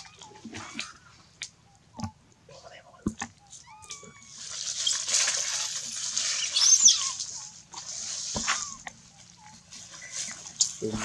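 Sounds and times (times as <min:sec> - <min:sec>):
baby monkey squeaking: 0:03.4 - 0:07.6, 0:08.5 - 0:10.4
baby monkey screeching scream: 0:03.6 - 0:07.5, 0:08.4 - 0:08.8.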